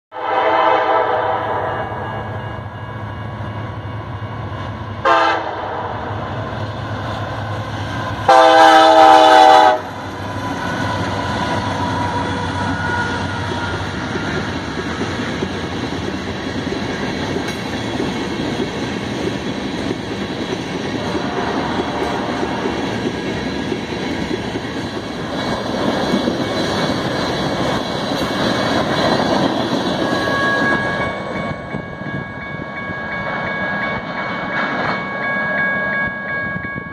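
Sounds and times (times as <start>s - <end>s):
train air horn blasts: 0.1s - 2.4s, 5.0s - 6.3s, 8.2s - 10.1s, 21.0s - 22.7s
train wheels clattering: 7.8s - 35.9s.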